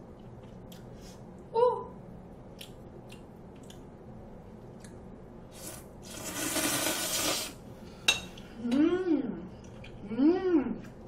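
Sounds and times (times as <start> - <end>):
person slurping noodles: 5.5 - 7.6.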